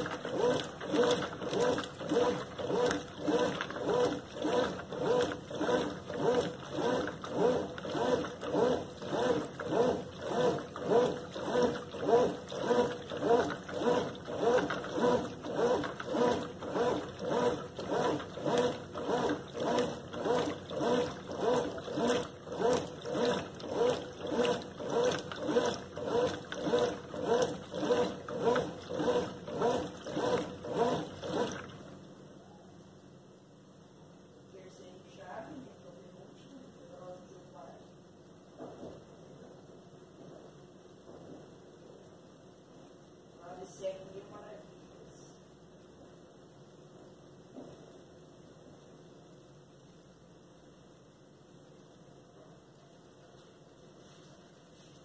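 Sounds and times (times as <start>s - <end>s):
washing machine agitator sloshing: 0.0s - 32.0s.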